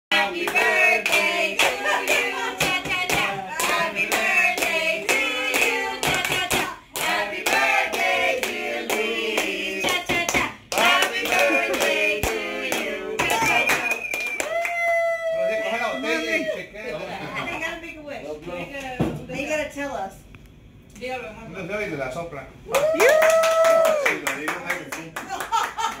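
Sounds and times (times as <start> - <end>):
small group singing together: 0.1 - 14.0
people clapping in time: 8.4 - 14.8, 23.0 - 26.0.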